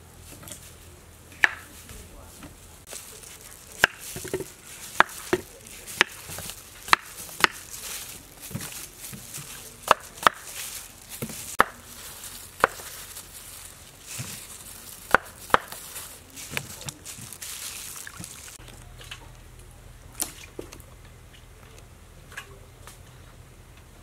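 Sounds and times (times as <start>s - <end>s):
knife chopping on wooden board: 3.8s - 7.6s, 9.8s - 10.5s, 11.2s - 11.8s, 12.6s - 13.0s.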